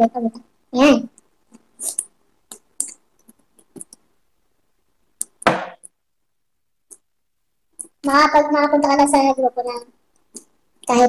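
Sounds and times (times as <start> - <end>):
mouth eating sounds: 1.6 - 4.0, 10.2 - 10.6.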